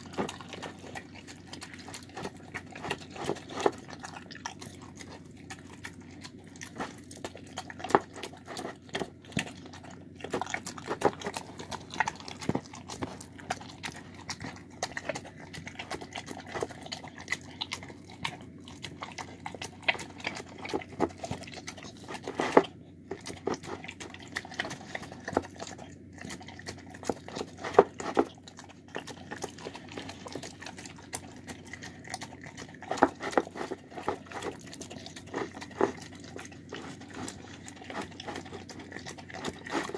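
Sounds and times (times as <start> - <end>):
dog chewing wet food: 0.0 - 39.9.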